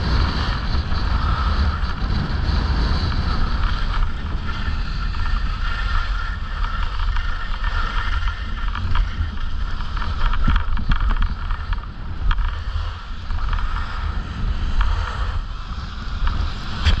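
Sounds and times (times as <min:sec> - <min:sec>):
scattered ticks: 0:00.0 - 0:17.0
skis sliding over packed snow: 0:00.0 - 0:17.0
wind buffeting microphone: 0:00.0 - 0:17.0.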